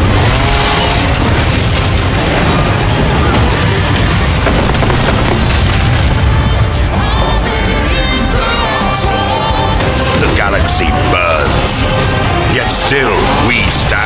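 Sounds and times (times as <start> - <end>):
epic music with booming low end: 0.0 - 14.0.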